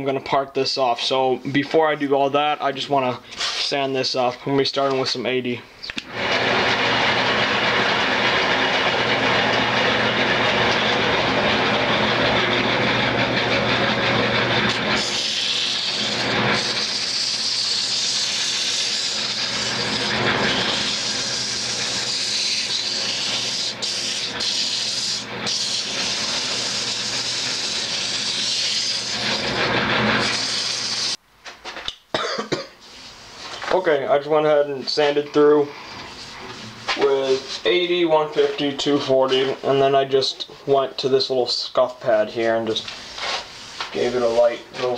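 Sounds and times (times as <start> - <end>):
lathe motor hum: 6.1 - 31.2
sandpaper hissing on spinning wood: 14.8 - 31.2, 43.0 - 44.9.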